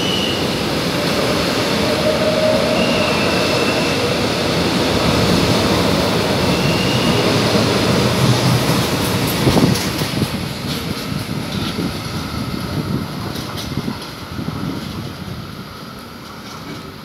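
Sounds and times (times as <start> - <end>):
train rumbling past: 0.0 - 17.0
high wheel squeal: 1.3 - 4.3, 6.4 - 7.6.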